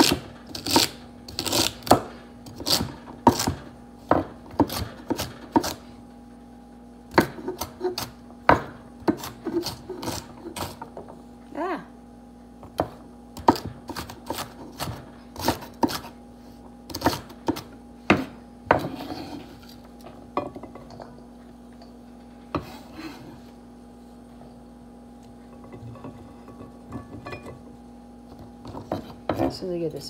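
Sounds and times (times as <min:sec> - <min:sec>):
knife chopping on wooden board: 0:00.0 - 0:05.8, 0:07.1 - 0:11.0, 0:12.6 - 0:16.2, 0:16.9 - 0:19.4
faint steady hum: 0:00.0 - 0:30.0.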